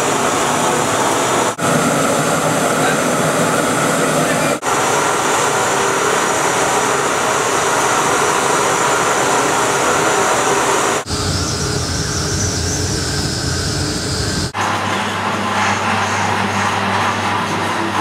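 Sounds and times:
gas burner rushing: 0.0s - 18.0s
deep steady noise with hum: 11.0s - 14.6s.

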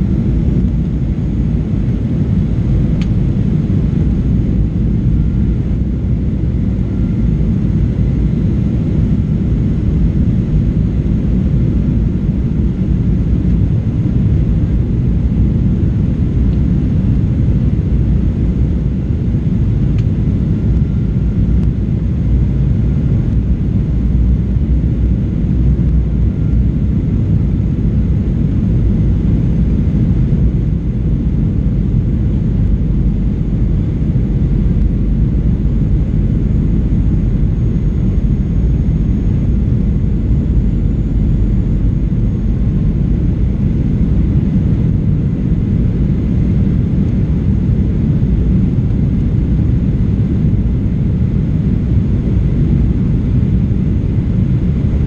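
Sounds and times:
airplane cabin engine roar: 0.0s - 55.0s.

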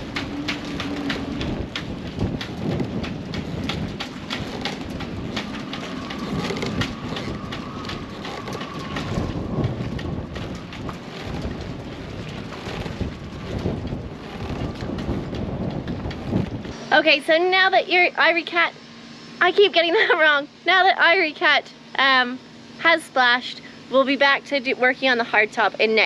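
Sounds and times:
sharp tapping patter: 0.0s - 16.8s
wind on microphone: 0.0s - 17.0s
choppy water: 0.0s - 17.7s.

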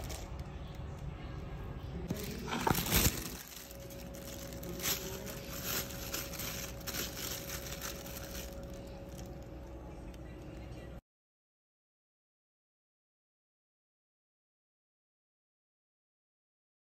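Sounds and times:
plastic bags crinkling: 0.0s - 1.0s, 2.1s - 9.5s
low steady hum: 0.0s - 11.0s.

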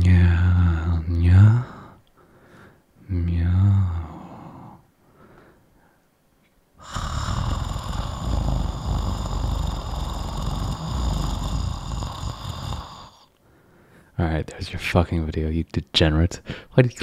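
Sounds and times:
man imitating cat purr: 0.0s - 1.8s, 6.8s - 13.3s.

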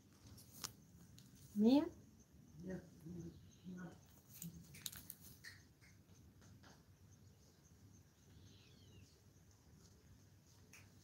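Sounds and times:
soft clicks and rustles: 0.0s - 1.6s, 4.1s - 6.9s.

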